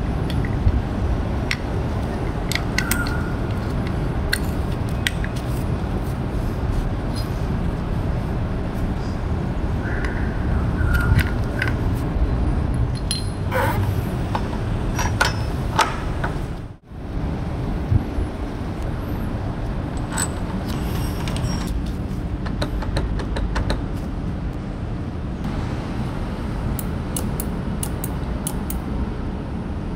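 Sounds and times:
low background rumble: 0.0 - 29.9
metallic clicks of brake parts: 1.4 - 5.5, 26.8 - 28.8.

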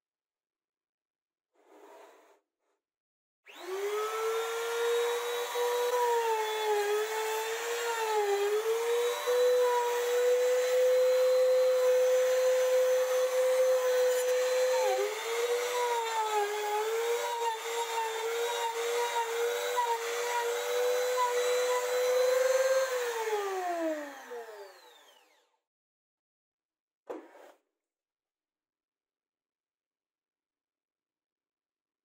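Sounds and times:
router whining while cutting wood: 3.5 - 25.6.

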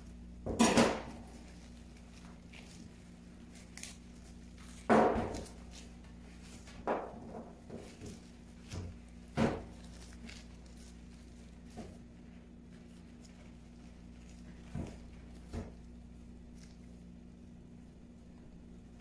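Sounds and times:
fruit thudding on steel counter: 4.8 - 5.6.

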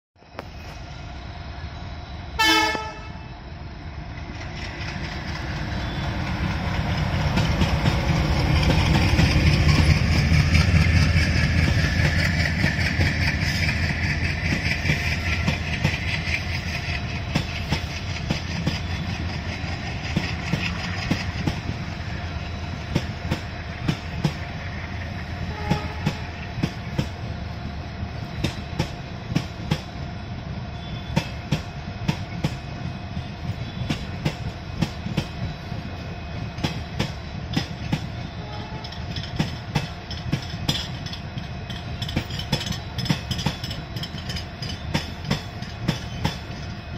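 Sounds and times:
locomotive rumble: 0.3 - 46.9
wheels clacking over rail joints: 4.1 - 27.3, 36.5 - 46.9.

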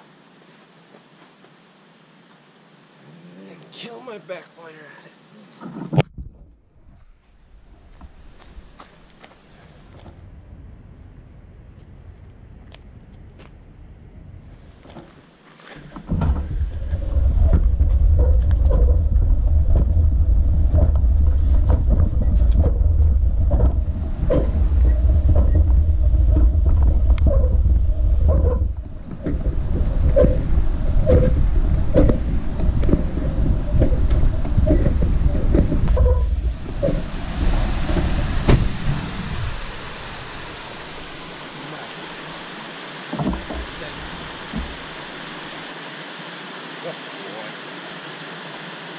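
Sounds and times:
low rumbling on microphone: 5.8 - 15.1, 16.0 - 42.5
hand cart rolling over dirt: 14.7 - 39.1
flowing river water: 14.8 - 48.9.

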